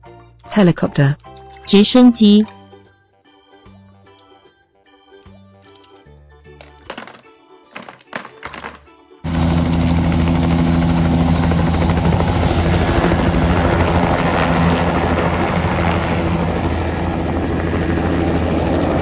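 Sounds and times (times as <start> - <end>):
helicopter rotor and engine: 9.2 - 19.0.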